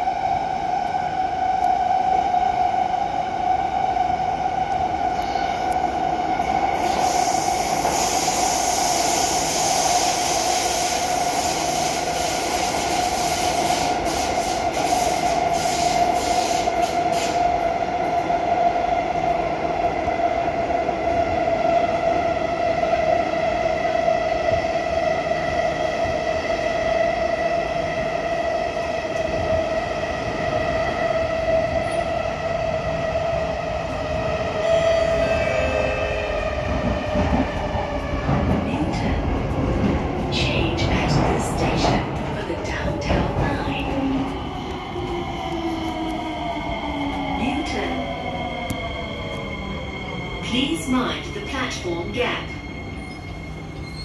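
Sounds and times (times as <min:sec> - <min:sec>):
metro train whine: 0:00.0 - 0:54.0
hiss: 0:06.8 - 0:17.4.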